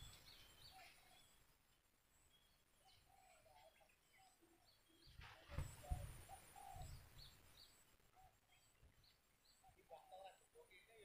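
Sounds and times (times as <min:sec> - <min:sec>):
low repeated bird notes: 0:00.0 - 0:11.0
rustle with low thumps: 0:04.9 - 0:08.1.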